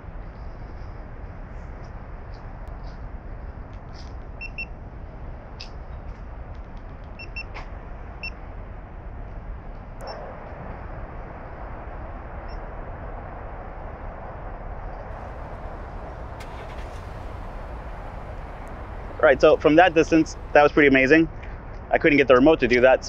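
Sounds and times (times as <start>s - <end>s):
car engine starting and idling: 15.1s - 21.2s.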